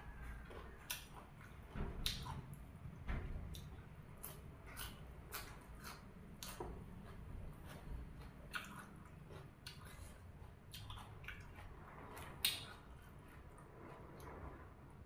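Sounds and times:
wet chewing: 0.0 - 2.7, 3.5 - 14.7.

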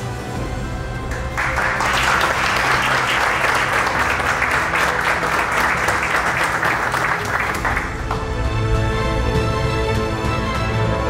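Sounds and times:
faint background music: 0.0 - 11.0
people applauding: 1.0 - 8.5.

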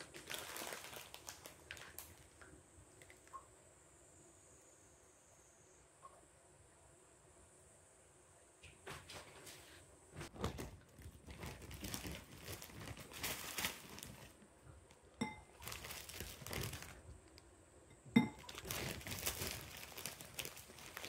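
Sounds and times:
ice cubes clinking in glass bowl: 18.2 - 21.0.

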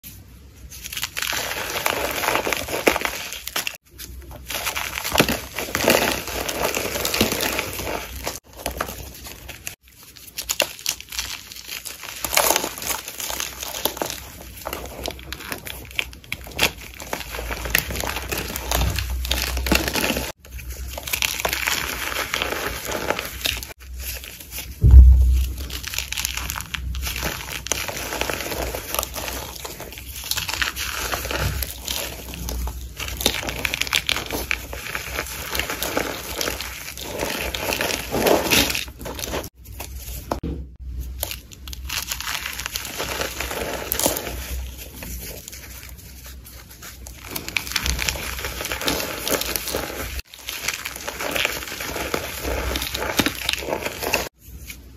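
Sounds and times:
powder crunching and crackling: 0.0 - 54.9
low thump: 24.8 - 25.8.

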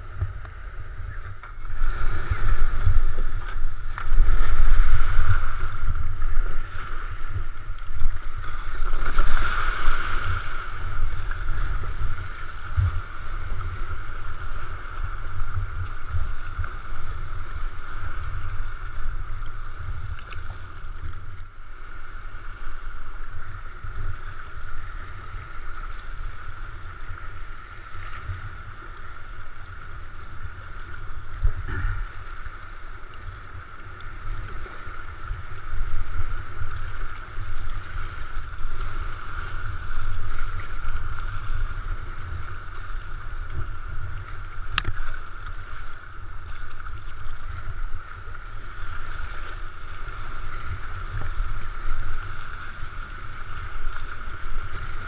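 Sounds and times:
hiss of moving water: 0.0 - 20.8, 21.6 - 55.0
waves splashing against kayak hull: 0.0 - 55.0
wind rumbling on microphone: 0.0 - 55.0.

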